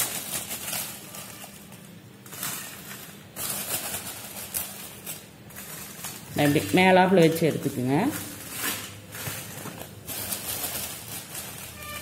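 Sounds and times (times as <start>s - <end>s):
dried chillies rustling: 0.0s - 12.0s
plastic bag crinkling: 0.0s - 12.0s.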